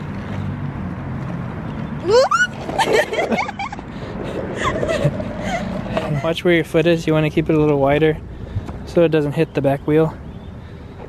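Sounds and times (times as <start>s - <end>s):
longboard wheels rolling on asphalt: 0.0s - 11.0s
person laughing: 2.1s - 6.4s.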